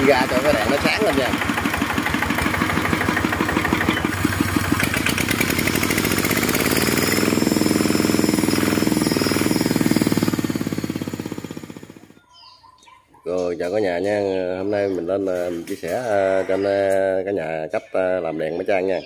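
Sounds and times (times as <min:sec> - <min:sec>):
diesel engine chugging: 0:00.0 - 0:12.2.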